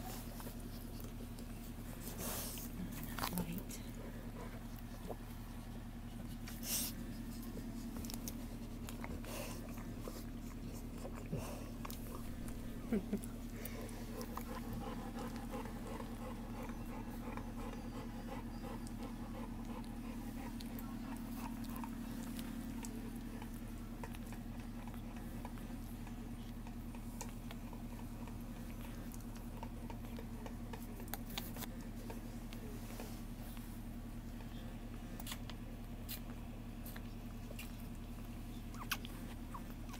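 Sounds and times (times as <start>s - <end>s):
puppies rustling against bedding: 0.0s - 17.3s
puppies nursing clicks and smacks: 0.0s - 39.9s
steady low hum: 0.0s - 39.9s.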